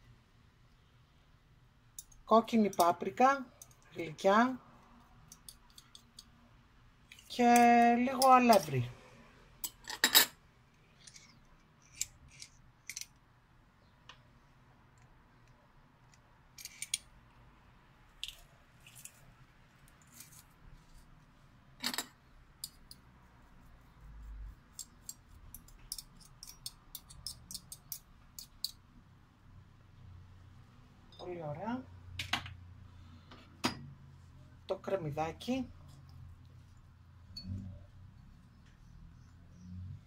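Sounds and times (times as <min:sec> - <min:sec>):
metal spoon clinking on glass: 0:25.0 - 0:28.8.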